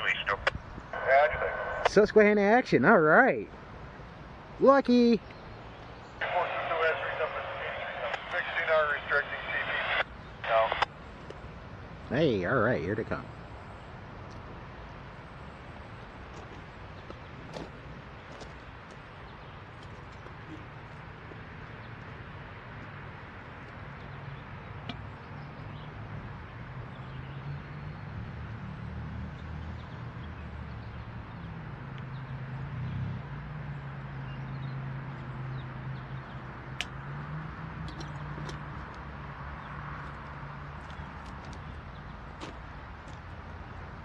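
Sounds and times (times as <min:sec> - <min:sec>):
diesel locomotive engine drone: 0:05.6 - 0:19.9.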